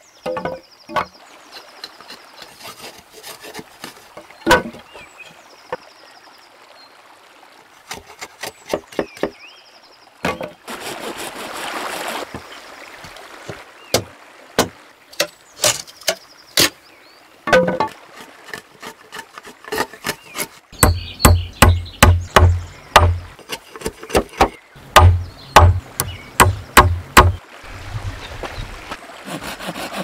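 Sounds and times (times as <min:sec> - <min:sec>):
wood splitting rasp: 0:01.5 - 0:04.2, 0:17.8 - 0:27.4, 0:29.2 - 0:30.0
hatchet knocking into wood: 0:20.8 - 0:23.2, 0:24.1 - 0:27.4.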